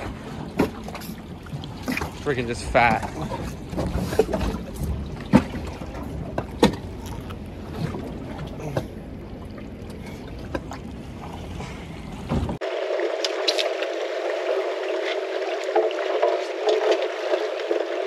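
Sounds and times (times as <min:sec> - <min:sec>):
wind and water rumble: 0:00.0 - 0:18.0.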